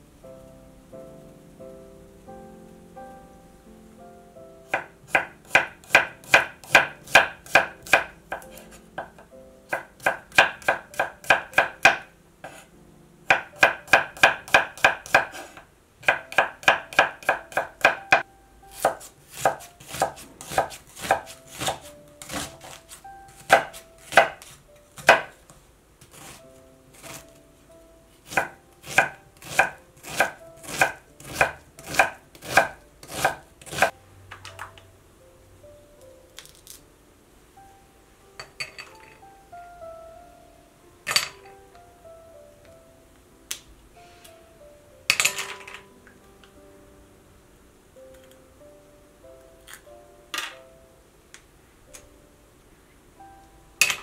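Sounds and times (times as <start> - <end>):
knife chopping on wooden board: 4.7 - 12.6, 13.3 - 25.4, 28.3 - 33.9.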